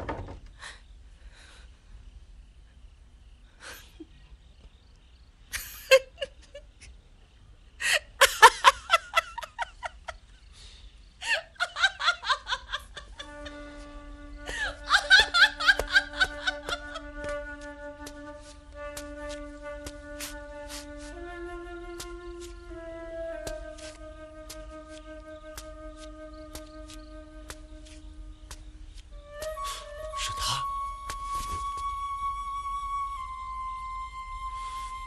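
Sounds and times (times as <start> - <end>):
woman laughing: 5.6 - 6.7, 7.8 - 10.2, 11.2 - 13.6, 14.5 - 17.4
music with long held notes: 13.2 - 35.0.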